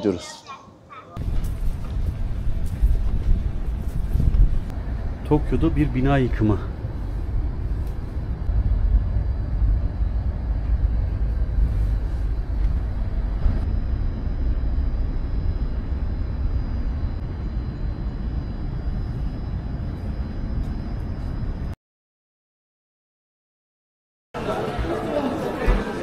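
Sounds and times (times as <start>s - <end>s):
heavy machinery rumble: 1.2s - 21.7s
faint high whine: 1.2s - 21.8s.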